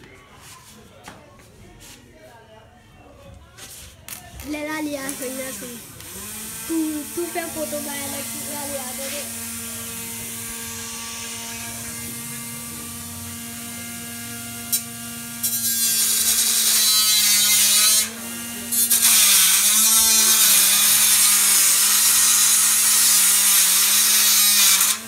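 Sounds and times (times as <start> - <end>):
small motor buzzing whir: 5.0 - 25.0.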